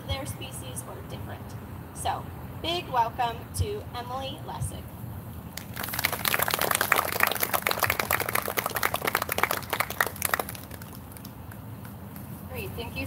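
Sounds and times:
audience applauding: 5.6s - 11.3s.

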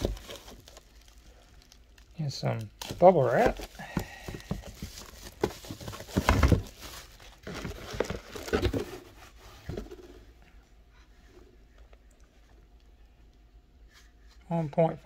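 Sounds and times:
bubble wrap crinkling: 0.0s - 9.9s.

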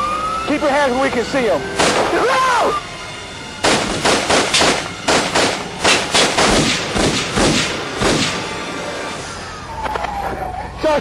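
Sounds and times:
rapid gunshots: 3.6s - 8.5s.

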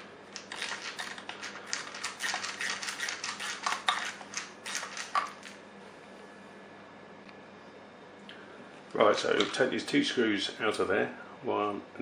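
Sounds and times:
screwdriver clicking and scraping: 0.4s - 5.6s.

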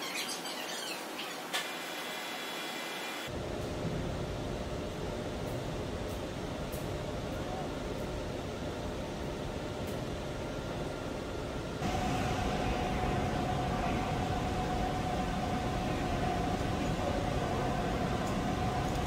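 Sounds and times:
steady whine: 1.6s - 19.0s.

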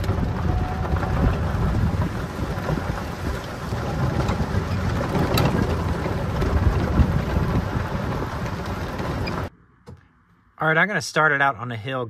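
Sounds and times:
tyres rumbling on gravel: 0.0s - 9.5s
wind on microphone: 0.0s - 9.5s.

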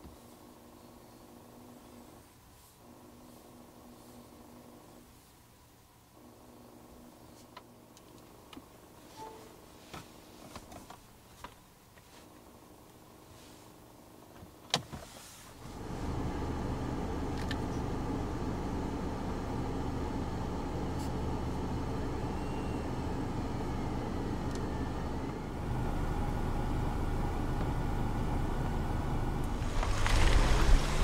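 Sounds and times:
diesel engine running: 15.6s - 31.0s.

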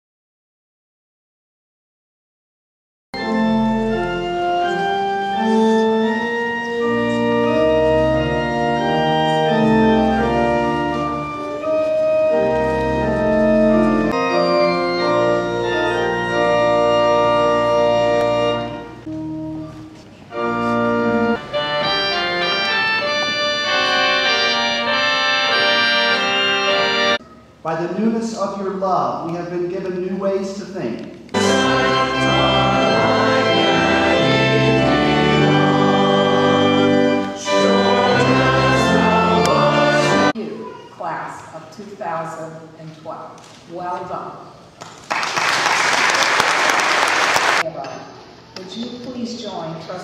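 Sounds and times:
organ playing slow chords: 3.2s - 27.2s, 31.3s - 40.4s.

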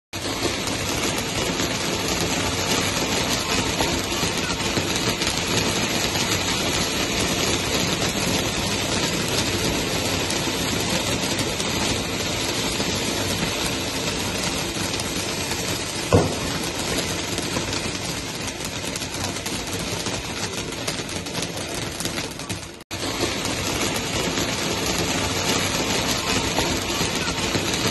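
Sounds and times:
firework fountain crackling: 0.1s - 27.9s
firework pop: 16.1s - 16.7s.

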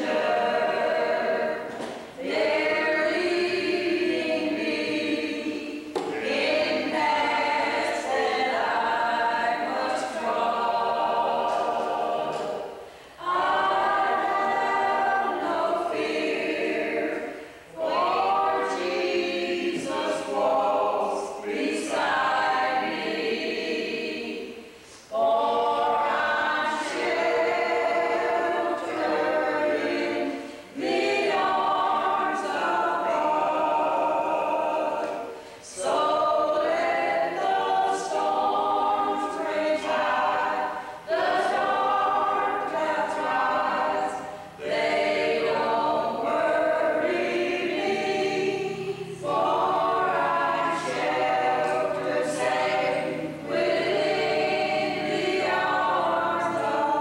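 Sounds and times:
group singing unaccompanied: 0.0s - 57.0s.

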